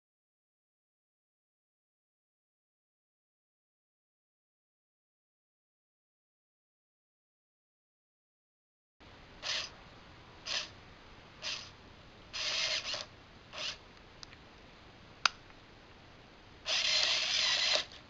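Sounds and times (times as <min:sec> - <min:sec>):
servo motor whirring: 0:09.4 - 0:09.7, 0:10.4 - 0:10.7, 0:11.4 - 0:13.8, 0:16.7 - 0:18.0.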